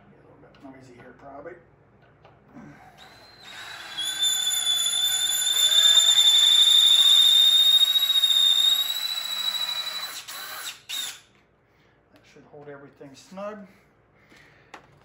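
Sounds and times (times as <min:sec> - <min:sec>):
power drill whine: 0:03.0 - 0:11.3.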